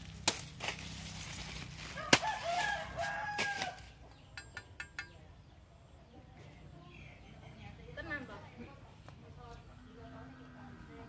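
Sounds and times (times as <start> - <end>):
rooster crowing: 1.9 - 4.0.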